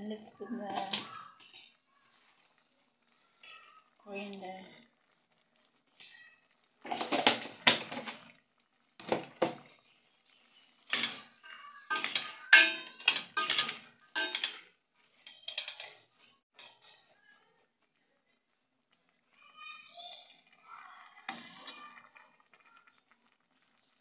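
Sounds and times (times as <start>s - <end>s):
metal ladle scraping a pot: 10.8s - 17.2s.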